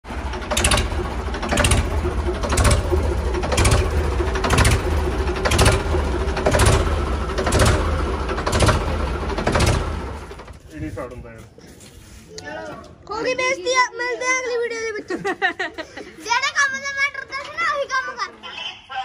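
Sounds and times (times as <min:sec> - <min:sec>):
tractor engine rumbling: 0:00.0 - 0:11.2.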